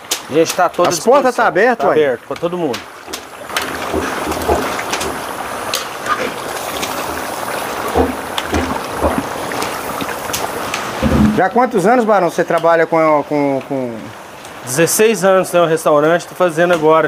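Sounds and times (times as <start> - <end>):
utensil stirring pan: 0.0 - 11.6
pork sizzling in lard: 0.0 - 14.9.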